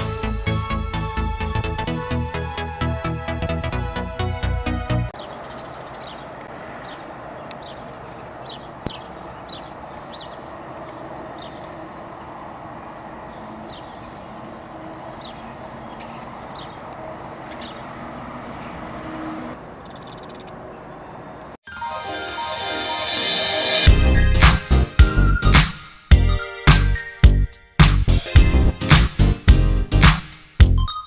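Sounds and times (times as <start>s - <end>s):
bird chirping: 5.2s - 18.9s, 19.6s - 21.9s.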